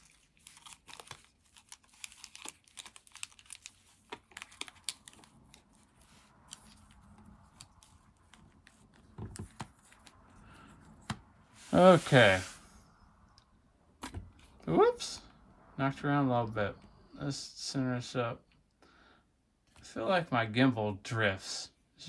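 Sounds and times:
foil wrappers crinkling: 0:00.0 - 0:08.3.

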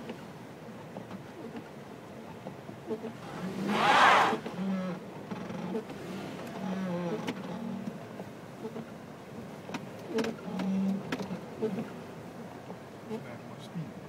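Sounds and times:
car engine labouring: 0:03.0 - 0:08.0.

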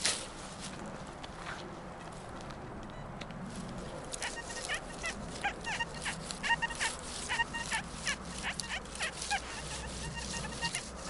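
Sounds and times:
sliding tones: 0:04.1 - 0:11.0.

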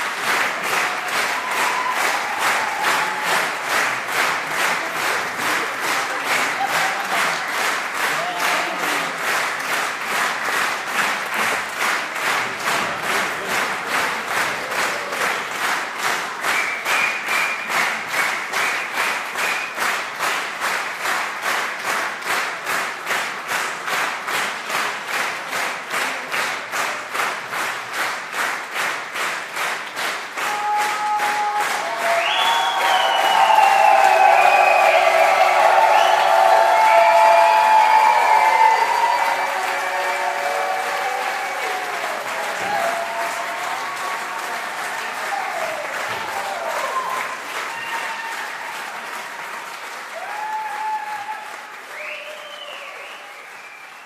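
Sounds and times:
murmur of crowd voices: 0:00.0 - 0:18.1
audience rhythmic clapping: 0:00.0 - 0:54.0.

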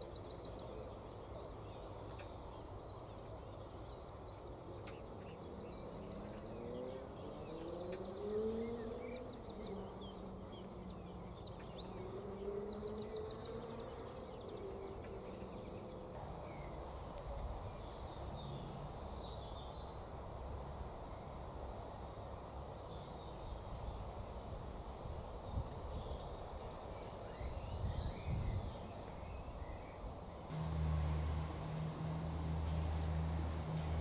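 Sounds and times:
low background rumble: 0:30.5 - 0:34.0
low thumps: 0:30.5 - 0:34.0.

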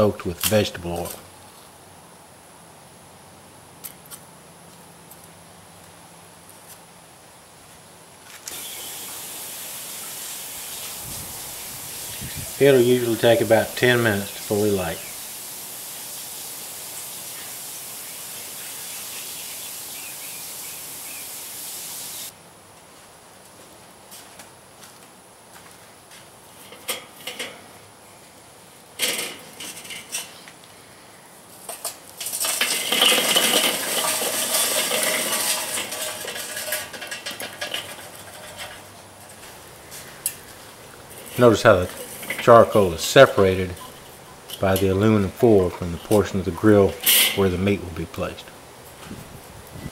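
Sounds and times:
burning charcoal hissing: 0:08.4 - 0:22.4, 0:26.4 - 0:49.9
charcoal clattering onto grate: 0:26.6 - 0:27.7, 0:29.0 - 0:30.5, 0:31.6 - 0:47.7
metal clinks and knocks: 0:31.7 - 0:39.4, 0:41.0 - 0:43.1.

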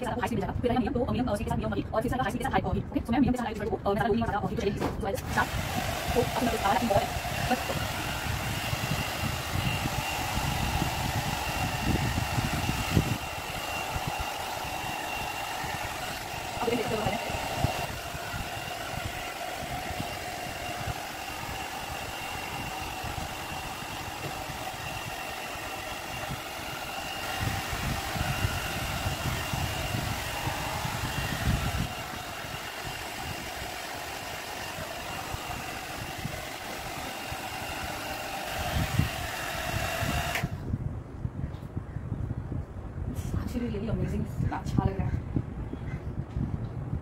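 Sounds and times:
hot-air brush fan whining: 0:04.3 - 0:40.8
rush of blown air: 0:05.2 - 0:40.7.

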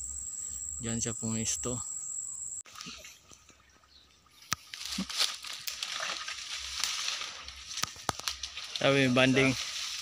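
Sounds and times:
footsteps through undergrowth: 0:04.3 - 0:10.0
leaves and stems rustling: 0:04.4 - 0:10.0
twig snapping: 0:04.5 - 0:08.8.

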